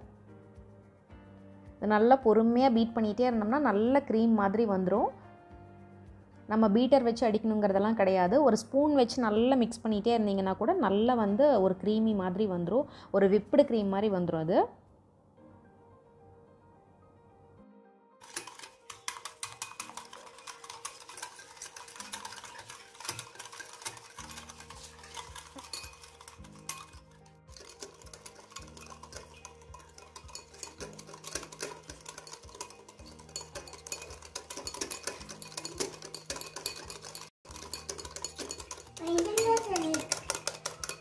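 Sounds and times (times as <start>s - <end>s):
background music with low pulse: 0.0s - 12.8s
wire whisk beating in glass bowl: 18.2s - 41.0s.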